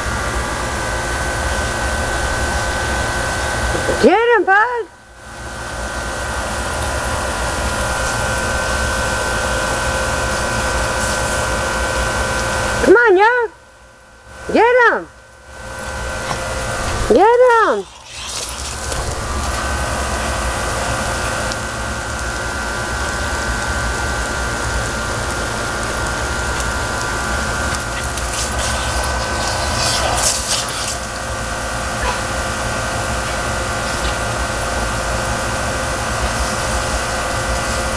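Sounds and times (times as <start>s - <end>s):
mechanical hum: 0.0s - 37.9s
hiss of lawn sprinklers: 6.3s - 12.7s, 16.2s - 37.9s.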